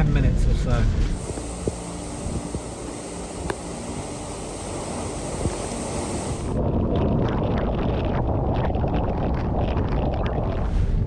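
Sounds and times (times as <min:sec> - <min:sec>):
wind-driven rain hissing: 0:01.1 - 0:10.8
wind buffeting microphone: 0:05.3 - 0:11.0.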